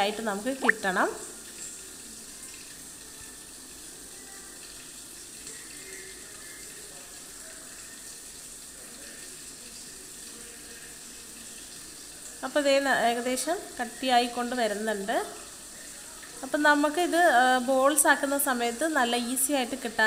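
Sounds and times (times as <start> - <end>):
syrup sizzling in a pan: 0.0 - 20.0.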